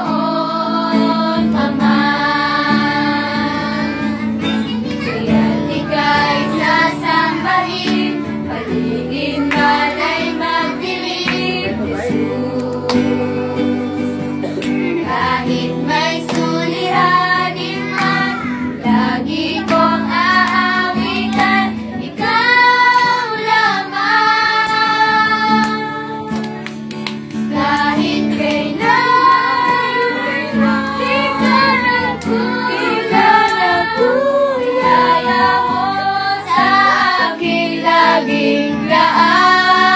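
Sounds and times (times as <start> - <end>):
children singing: 0.0 - 26.6, 27.4 - 39.9
strummed acoustic guitar: 0.0 - 39.9.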